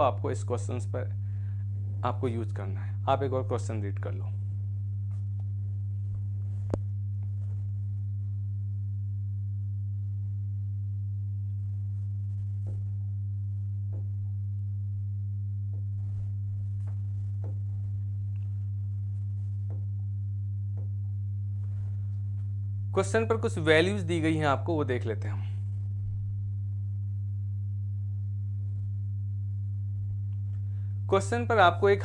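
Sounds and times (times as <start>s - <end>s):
low electrical hum: 0.0s - 32.0s.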